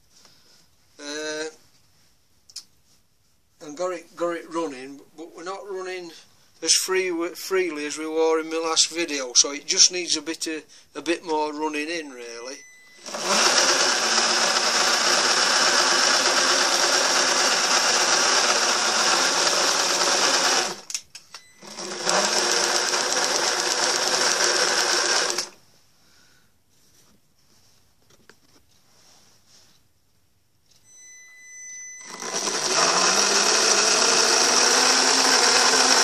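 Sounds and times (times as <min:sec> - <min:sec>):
electric motor whirring: 0:13.0 - 0:20.9, 0:21.6 - 0:25.5, 0:32.0 - 0:36.0.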